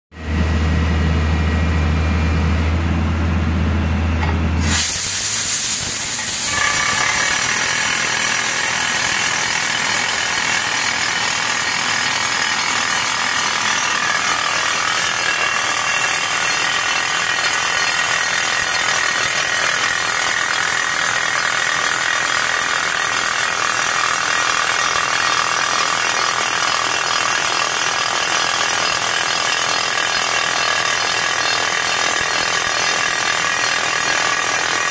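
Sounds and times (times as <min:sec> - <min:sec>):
air blowing: 0:04.6 - 0:07.4
rock drill hammering: 0:06.1 - 0:34.9.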